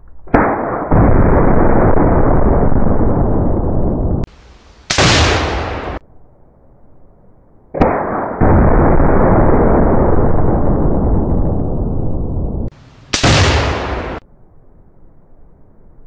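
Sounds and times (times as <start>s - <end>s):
rifle shot: 0.3s - 2.8s, 4.9s - 6.0s, 7.7s - 9.4s, 13.1s - 14.2s
rumbling explosion boom: 0.4s - 4.3s, 7.8s - 14.2s.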